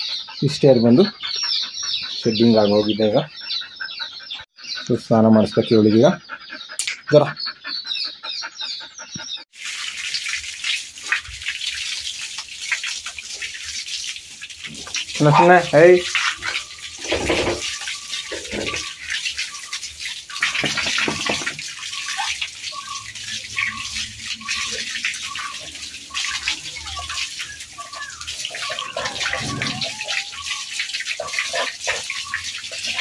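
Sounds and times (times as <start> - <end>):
water gushing from a hose: 9.5 - 33.0
water spattering on floor: 9.5 - 33.0.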